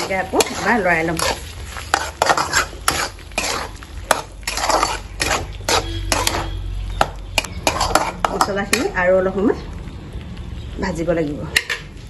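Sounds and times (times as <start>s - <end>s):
metal spatula scraping a pan: 0.0s - 8.9s.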